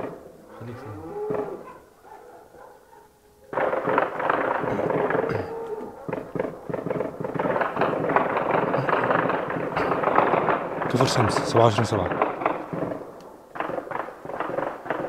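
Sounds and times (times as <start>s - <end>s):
rapid gunfire: 3.5s - 5.3s, 6.0s - 15.0s.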